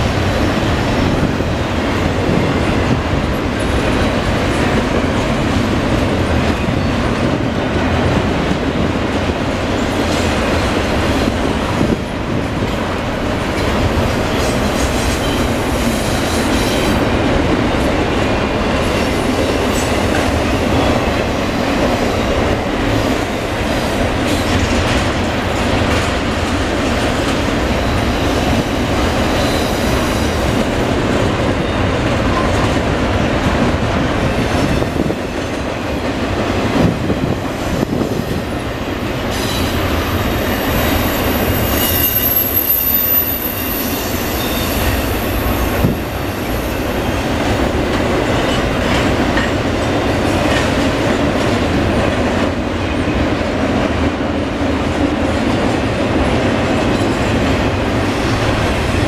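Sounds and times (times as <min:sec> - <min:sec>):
train cars rumbling on rails: 0:00.0 - 0:59.0
high wheel squeal: 0:39.3 - 0:45.7.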